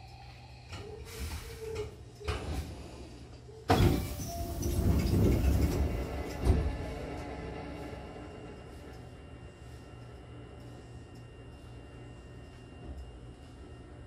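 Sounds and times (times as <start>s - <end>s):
train doors hissing: 0.9s - 2.8s, 3.7s - 8.1s
train brakes squealing: 3.7s - 5.8s.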